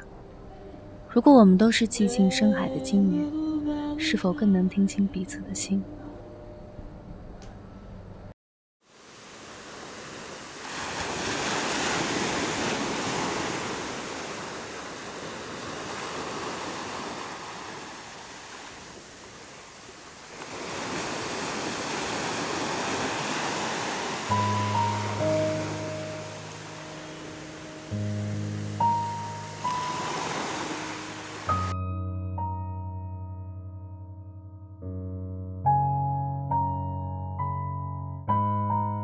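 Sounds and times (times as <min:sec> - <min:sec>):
surf on pebble beach: 0:08.9 - 0:31.7.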